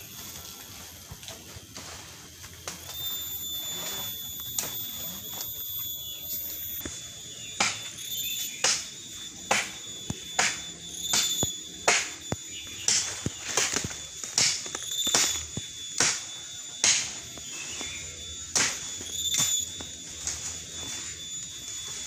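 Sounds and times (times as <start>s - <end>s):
leafy branches rustling and crackling: 0.0s - 7.5s
faint steady high tone: 0.0s - 22.0s.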